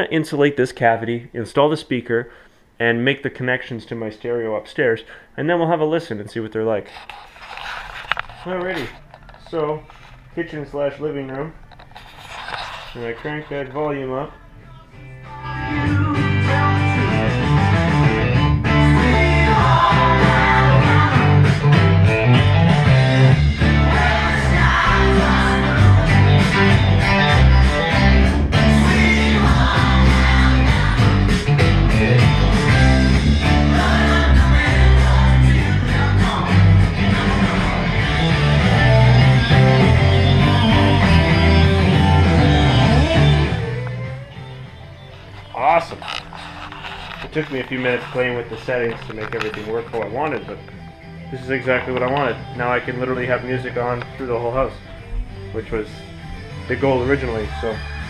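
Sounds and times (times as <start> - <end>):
rock music with guitar: 15.0 - 58.0.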